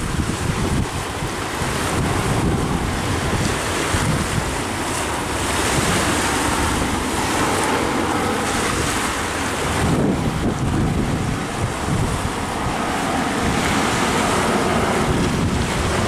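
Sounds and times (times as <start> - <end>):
steady rushing noise: 0.0 - 16.0
wind buffeting microphone: 0.0 - 16.0.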